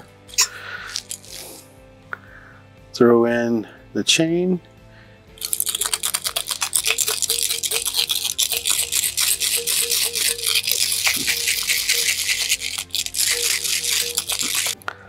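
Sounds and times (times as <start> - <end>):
chain rattling in glass jar: 0.3 - 1.6, 5.4 - 14.8.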